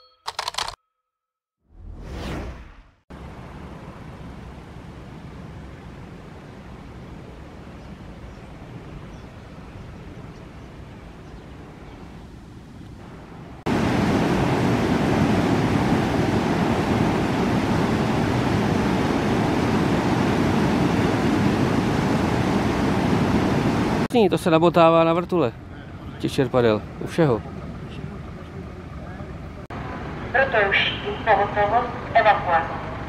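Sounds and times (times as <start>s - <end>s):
river rushing over a weir: 13.7s - 24.1s.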